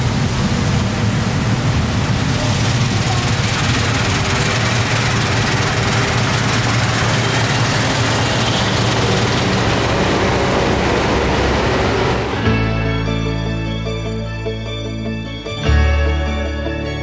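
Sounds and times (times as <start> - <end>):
rushing machine noise: 0.0 - 12.8
low engine drone: 0.0 - 15.5.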